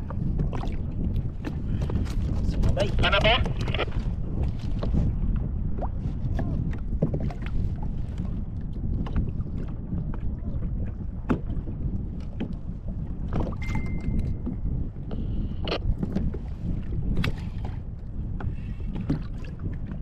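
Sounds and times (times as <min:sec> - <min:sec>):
water slapping against hull: 0:00.0 - 0:20.0
wind buffeting microphone: 0:00.0 - 0:20.0
thin steady tone: 0:13.6 - 0:14.4.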